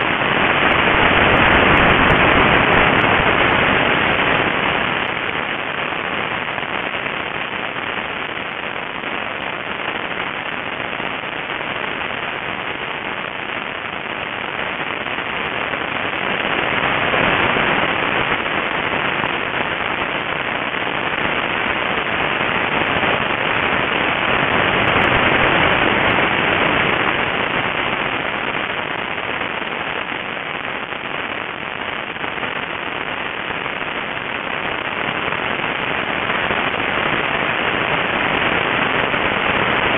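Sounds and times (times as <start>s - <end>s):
wind rushing over microphone: 0.0s - 9.0s.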